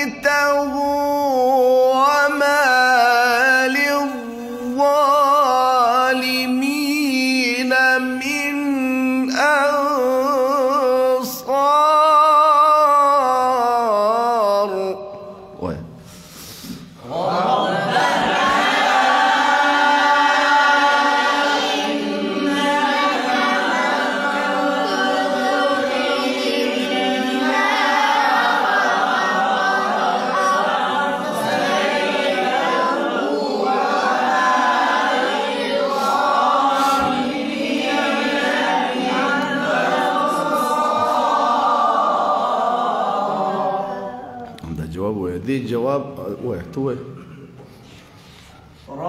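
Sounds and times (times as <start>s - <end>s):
man reciting melodically: 0.0s - 16.1s, 44.4s - 47.5s, 48.8s - 49.0s.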